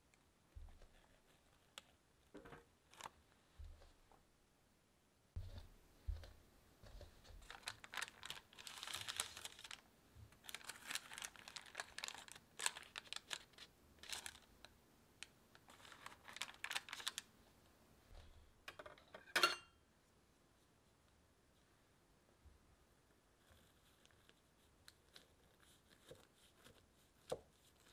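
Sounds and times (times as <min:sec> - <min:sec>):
baking paper crinkling: 0:07.1 - 0:14.6, 0:15.6 - 0:17.3.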